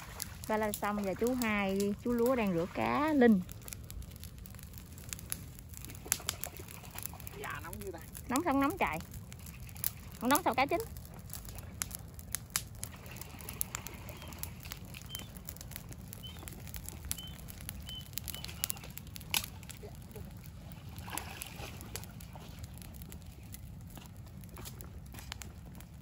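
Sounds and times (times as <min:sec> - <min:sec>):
fire crackling and popping: 0:00.0 - 0:26.0
steady low rumble: 0:00.0 - 0:26.0
bird chirping: 0:16.2 - 0:16.5, 0:17.1 - 0:18.9.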